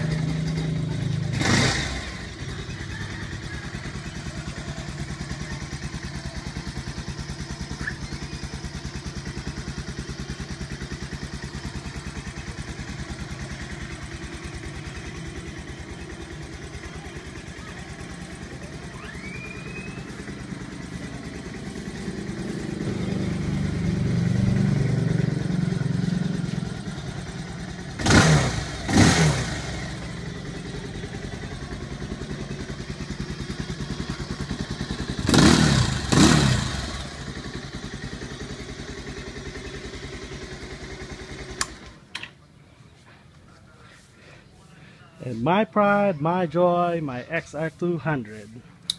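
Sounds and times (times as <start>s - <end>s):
motorcycle throttle blips: 0.0s - 38.2s
motorcycle engine idling: 0.0s - 48.9s.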